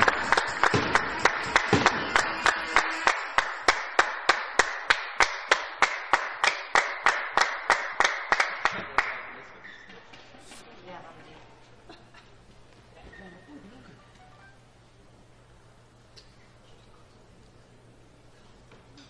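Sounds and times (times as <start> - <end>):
general applause: 0.0 - 9.4
rhythmic clapping: 0.0 - 9.4.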